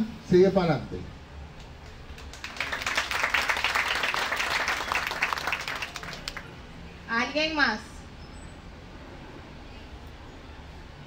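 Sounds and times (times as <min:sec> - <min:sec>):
crowd applauding: 0:01.8 - 0:06.6.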